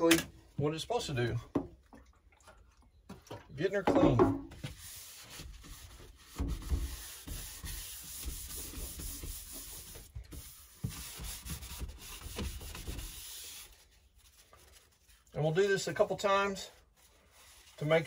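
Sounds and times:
cloth rag rubbing countertop: 0:04.5 - 0:18.0.

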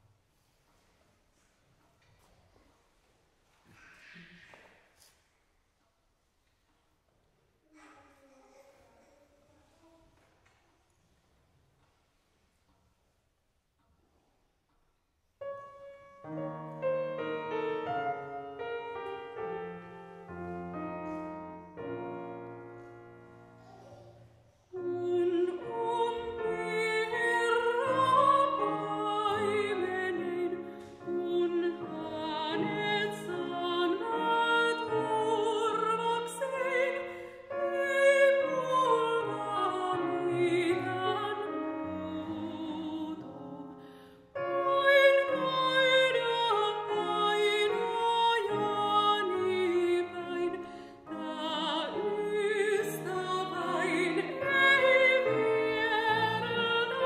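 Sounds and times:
soprano singing with vibrato: 0:24.8 - 0:43.8, 0:44.4 - 0:57.0.

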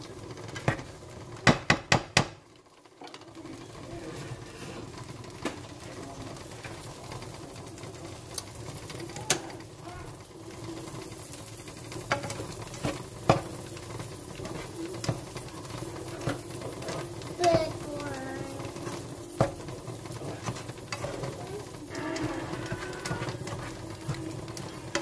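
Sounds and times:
sharp knocks against pan: 0:01.4 - 0:02.4
spatula scraping a frying pan: 0:10.5 - 0:25.0.

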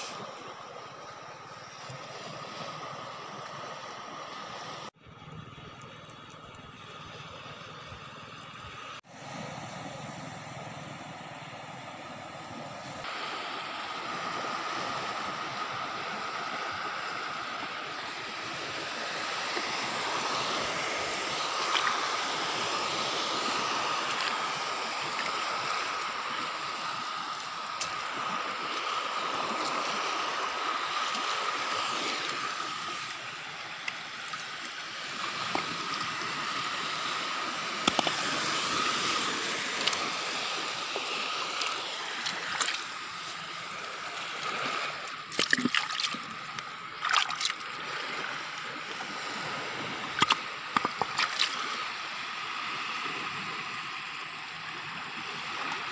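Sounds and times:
seawater washing over rocks: 0:00.0 - 0:00.7, 0:13.0 - 0:55.9.

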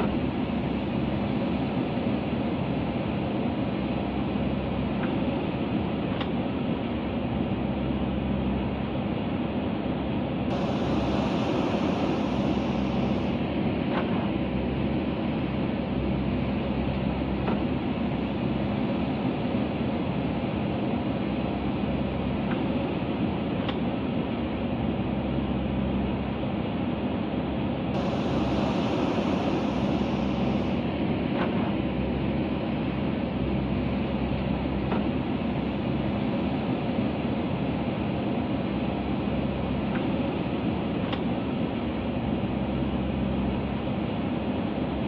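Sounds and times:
diesel engine running under load: 0:09.9 - 0:23.5, 0:27.5 - 0:40.4.

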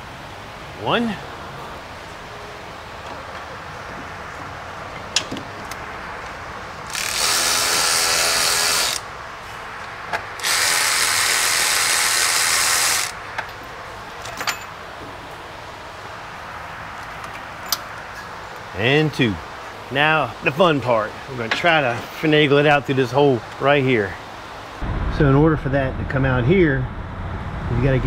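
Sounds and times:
electric ratchet zipping bolt: 0:06.8 - 0:09.0, 0:10.4 - 0:13.2.

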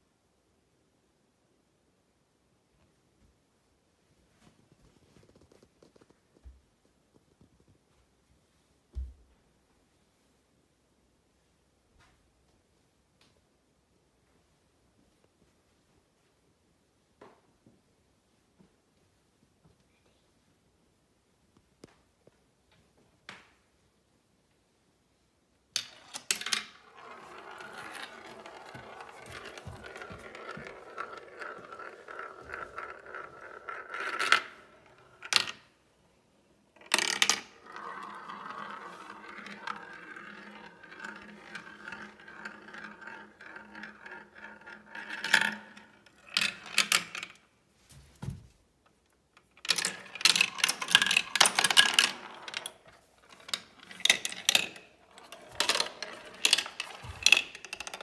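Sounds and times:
marble rolling whir in funnel: 0:25.9 - 0:35.6, 0:36.8 - 0:46.9, 0:49.6 - 0:58.0
marbles clicking in plastic run: 0:26.0 - 0:34.6, 0:36.8 - 0:47.4, 0:49.6 - 0:58.0
rattle of marble clicks: 0:49.4 - 0:58.0.

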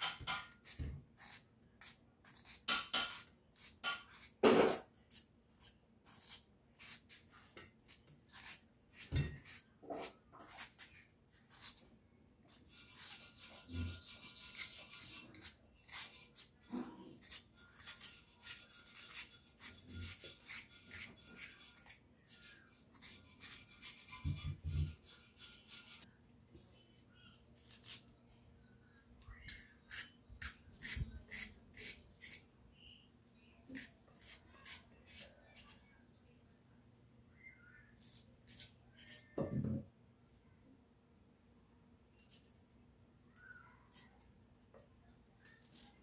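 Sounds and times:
knife cutting potato slices: 0:00.0 - 0:11.8, 0:12.5 - 0:25.9, 0:33.7 - 0:35.8.

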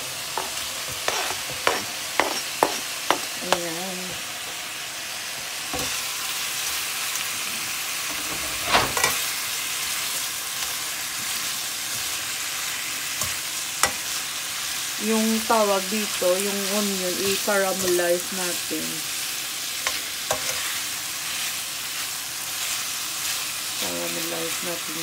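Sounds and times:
bacon sizzling in a frying pan: 0:00.0 - 0:25.0
utensil scraping a pan: 0:00.4 - 0:02.9.

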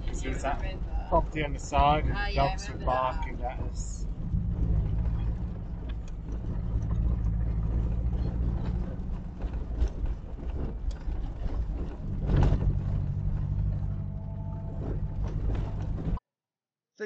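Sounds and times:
engine running at low speed: 0:00.0 - 0:16.2
knocks and rattles over bumps: 0:03.4 - 0:16.2.

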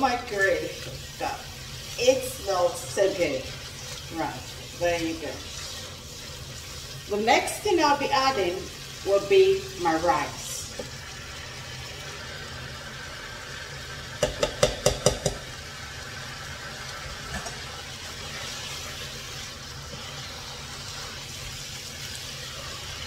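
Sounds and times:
sauce simmering with low sizzle: 0:00.0 - 0:23.0
sharp knocks against a pot: 0:14.2 - 0:15.4.

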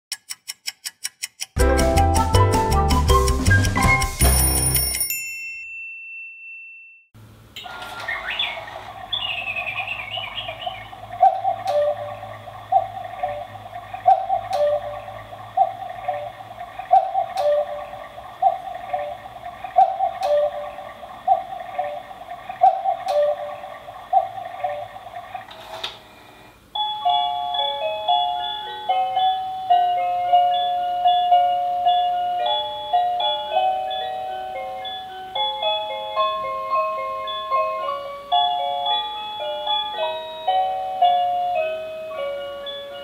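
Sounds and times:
bird chirps: 0:07.6 - 0:25.5
cuckoo clock call with echo: 0:07.6 - 0:25.5, 0:26.1 - 0:43.0.

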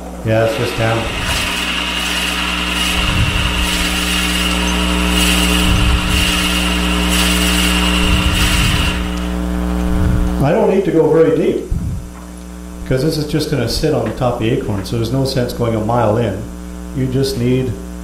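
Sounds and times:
wood lathe motor whine: 0:00.0 - 0:10.4
drill bit grinding through wood: 0:00.4 - 0:09.6.

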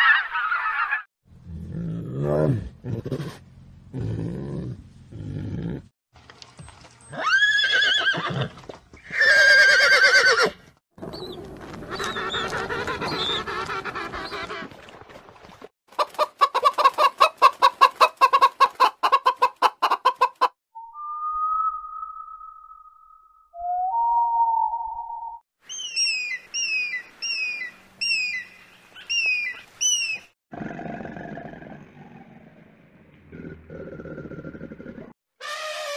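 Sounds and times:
chickens clucking rapidly: 0:11.8 - 0:14.7, 0:15.9 - 0:20.5.

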